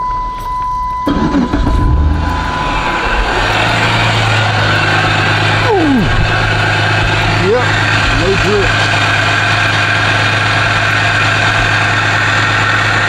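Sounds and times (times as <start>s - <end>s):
electronic warning tone: 0.0s - 4.6s
car engine cranking and idling: 1.0s - 13.0s.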